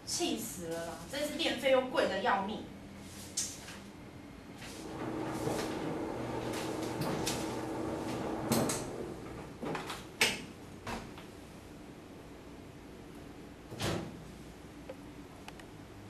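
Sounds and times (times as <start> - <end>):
tumble dryer humming: 4.8 - 9.9.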